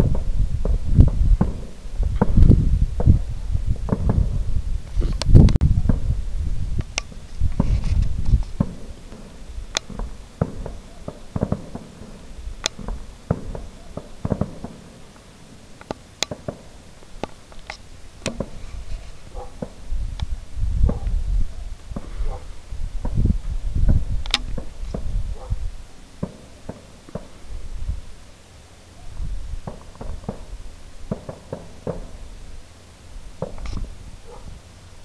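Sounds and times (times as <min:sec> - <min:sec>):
distant fireworks booming: 0:00.0 - 0:17.5, 0:18.1 - 0:28.1, 0:29.4 - 0:32.4, 0:33.3 - 0:34.4
sharp cracks: 0:06.8 - 0:21.2, 0:23.9 - 0:25.1, 0:26.2 - 0:27.4, 0:31.1 - 0:32.3, 0:33.4 - 0:33.9.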